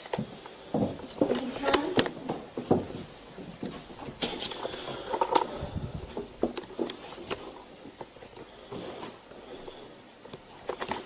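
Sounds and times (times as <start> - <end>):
small clicks and knocks: 6.2 - 8.5.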